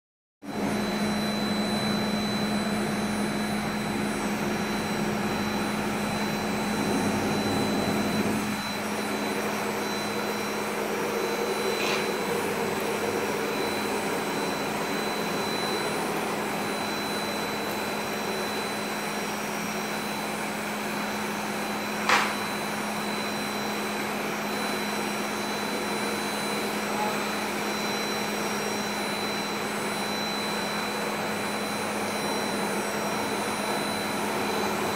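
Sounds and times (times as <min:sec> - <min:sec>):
router spindle whining: 0:00.5 - 0:34.9.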